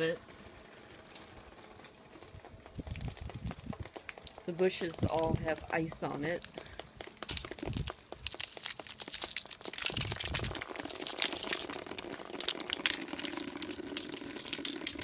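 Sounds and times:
icy leaves crackling: 0.3 - 15.0.

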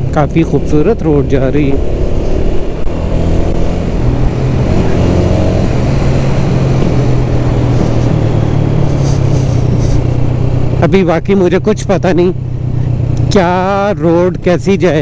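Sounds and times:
motorcycle engine running: 0.0 - 15.0
wind and road noise: 0.0 - 15.0.

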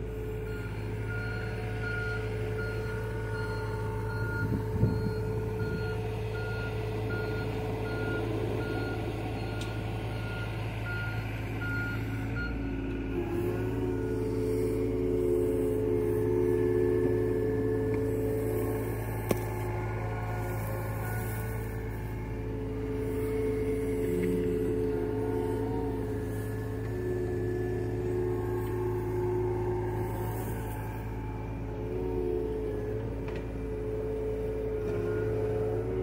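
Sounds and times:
excavator diesel engine running: 0.0 - 36.0
hydraulics whine: 0.0 - 36.0
travel alarm beeping: 0.5 - 12.6.

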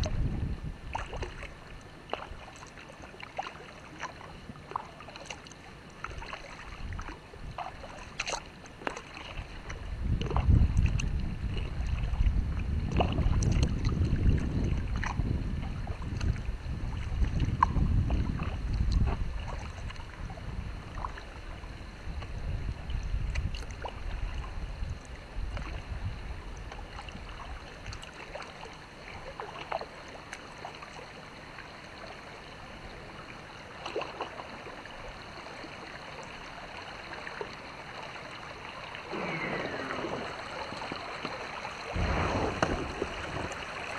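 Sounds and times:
wind rumbling on microphone: 0.0 - 1.7, 6.6 - 7.9, 9.2 - 28.1, 38.9 - 43.9
water lapping around kayak: 0.0 - 43.9
kayak rustling through reeds: 39.0 - 43.9.

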